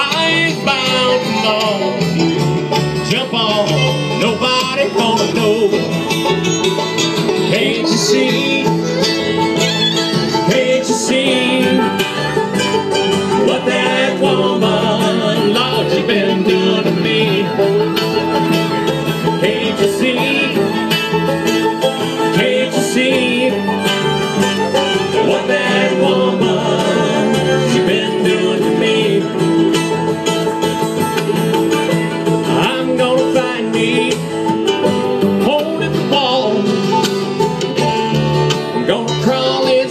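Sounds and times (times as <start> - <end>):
acoustic guitar: 0.0 - 39.9
banjo: 0.0 - 39.9
fiddle: 0.0 - 39.9
mandolin: 0.0 - 39.9
upright bass: 0.0 - 39.9.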